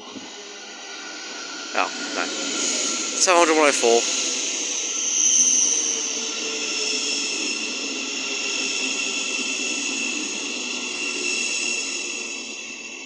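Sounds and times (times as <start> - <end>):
electric train whine: 0.0 - 13.0
train wheels rumbling on rails: 0.0 - 13.0.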